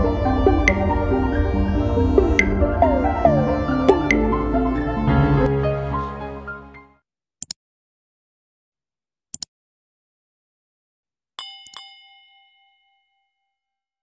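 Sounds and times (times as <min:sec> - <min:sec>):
notification bell ding: 0:11.4 - 0:13.6.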